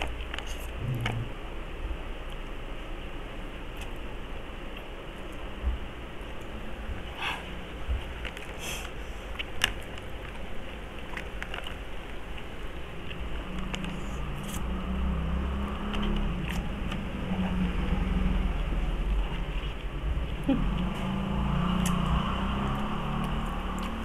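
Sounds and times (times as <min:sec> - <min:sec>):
low steady rumble: 0:00.0 - 0:24.0
noodles slurping and chewing: 0:08.0 - 0:20.0.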